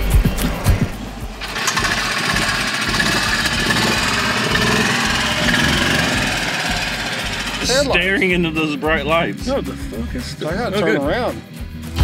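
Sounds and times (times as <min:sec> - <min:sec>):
golf cart engine running: 0:01.0 - 0:08.5.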